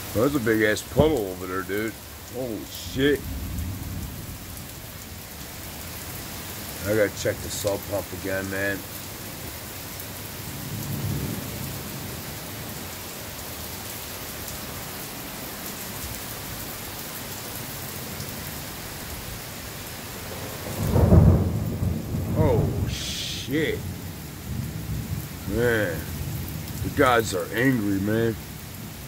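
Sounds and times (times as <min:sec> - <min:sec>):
heavy rain pouring: 0:00.0 - 0:29.0
thunder rumbling: 0:10.5 - 0:12.3, 0:20.2 - 0:28.6.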